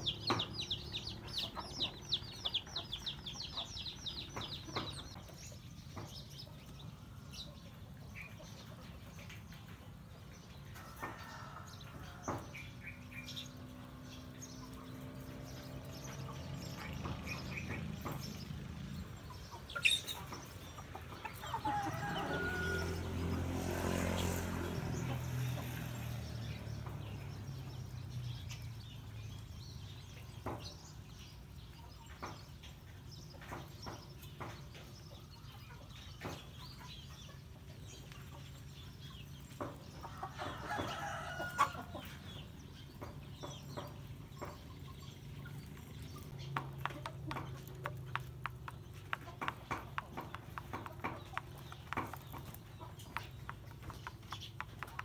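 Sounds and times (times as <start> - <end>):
chickens clucking and calling: 0.0 - 27.7, 30.2 - 55.0
beaks pecking the ground: 24.2 - 55.0.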